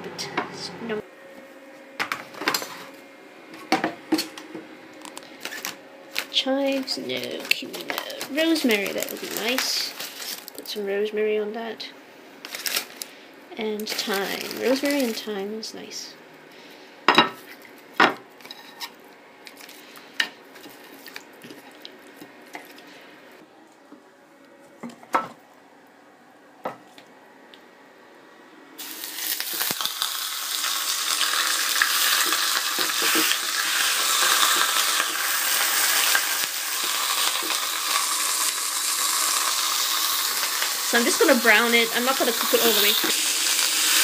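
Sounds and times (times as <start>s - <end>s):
meat sizzling in a frying pan: 28.8s - 44.0s.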